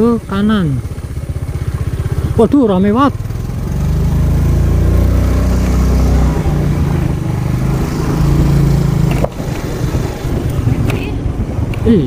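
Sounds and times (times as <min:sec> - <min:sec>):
motorcycle engine running: 0:00.0 - 0:12.0
wind on microphone: 0:04.7 - 0:12.0.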